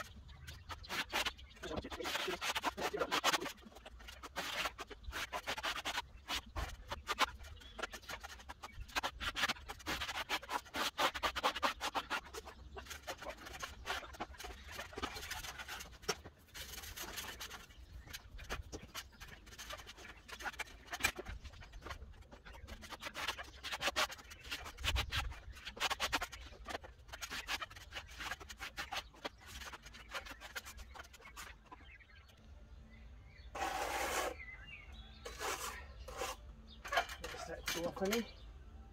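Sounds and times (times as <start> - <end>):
trowel scraping render: 0.0 - 31.7, 33.5 - 38.4.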